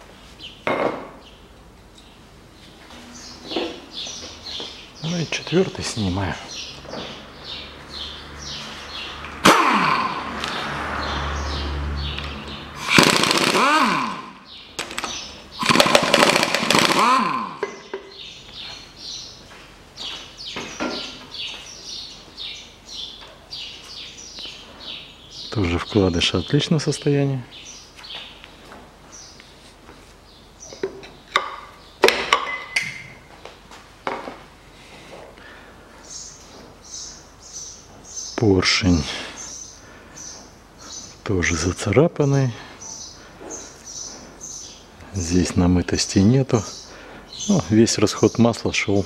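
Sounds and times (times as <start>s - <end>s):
pneumatic wrench bursts: 9.4s - 10.2s, 12.8s - 14.5s, 15.6s - 17.8s
rapid hammering of wrench: 12.8s - 14.2s, 15.6s - 17.8s.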